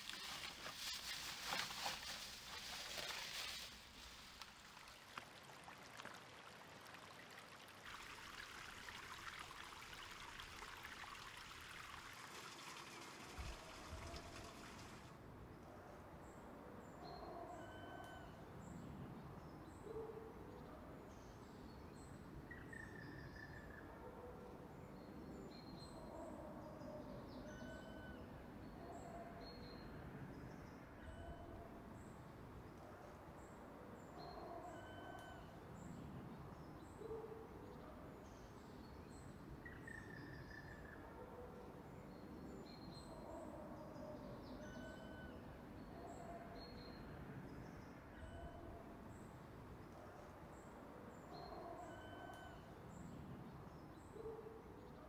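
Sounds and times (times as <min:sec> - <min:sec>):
creek water trickling: 0:00.0 - 0:15.2.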